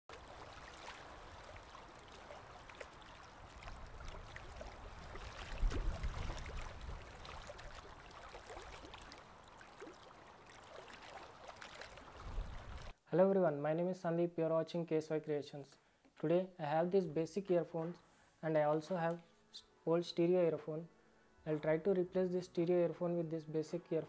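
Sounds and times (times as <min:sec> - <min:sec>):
pool water lapping: 0:00.1 - 0:13.0.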